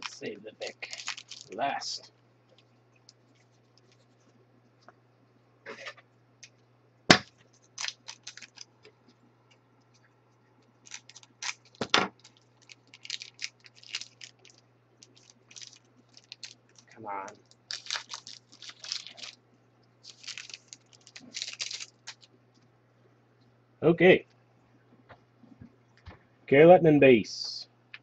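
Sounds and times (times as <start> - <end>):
wrapper crinkling: 0.0 - 4.4, 7.3 - 8.9, 10.6 - 19.4, 20.0 - 22.3.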